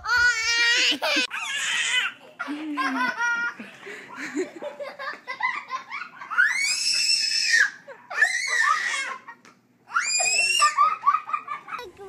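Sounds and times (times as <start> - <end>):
young child laughing: 0.4 - 1.4, 2.2 - 6.7, 7.6 - 12.0
child squealing: 6.3 - 9.3, 9.9 - 10.9.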